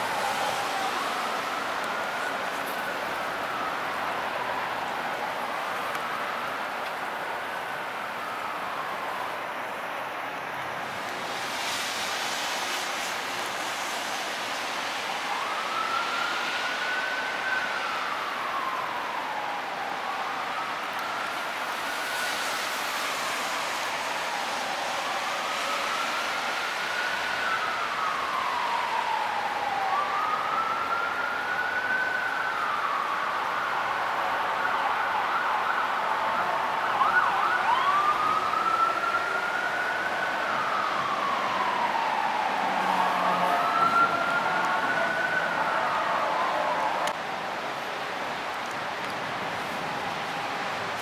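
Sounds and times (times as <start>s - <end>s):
siren wailing: 0.0s - 10.8s, 13.8s - 47.2s, 48.6s - 51.0s
background noise: 0.0s - 51.0s
outdoor background hiss: 0.0s - 51.0s.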